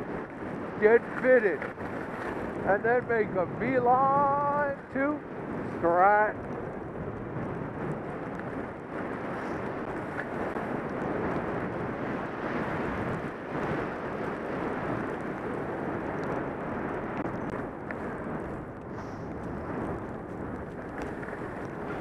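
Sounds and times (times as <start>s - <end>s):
skis sliding over snow: 0.0s - 6.6s, 7.8s - 22.0s
wind rushing over microphone: 0.0s - 22.0s.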